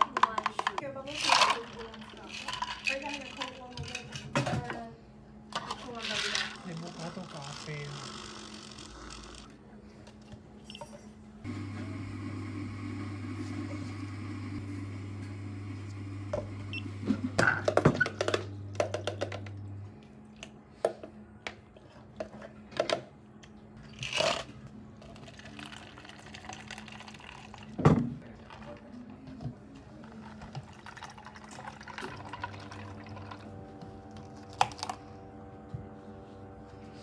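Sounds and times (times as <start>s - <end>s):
plastic cups clicking and clattering: 0.0s - 4.7s, 17.4s - 19.6s, 30.0s - 33.5s
low machine hum: 0.9s - 37.0s.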